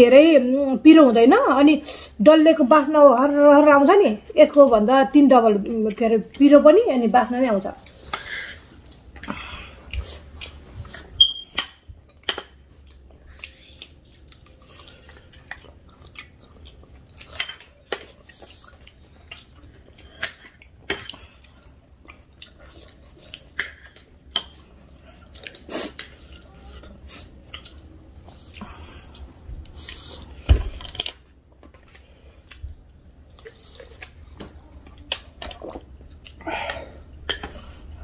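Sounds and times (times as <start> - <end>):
chewing: 7.8 - 11.3, 12.2 - 38.0.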